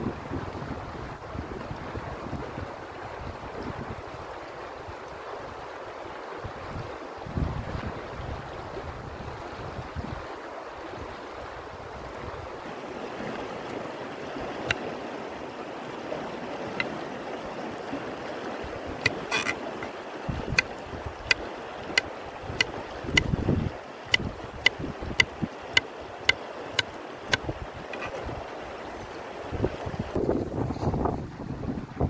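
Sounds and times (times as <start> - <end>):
wind buffeting microphone: 0.0 - 4.1, 6.4 - 12.6, 18.6 - 28.6, 29.4 - 32.0
river water rushing: 0.9 - 30.4
knife cutting on wooden board: 19.0 - 19.9, 26.8 - 28.2.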